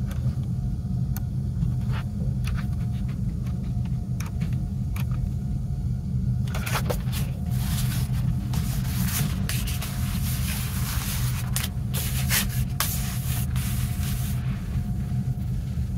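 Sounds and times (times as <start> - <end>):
steady low hum: 0.0 - 15.9
paper rustling and sliding: 6.6 - 15.2.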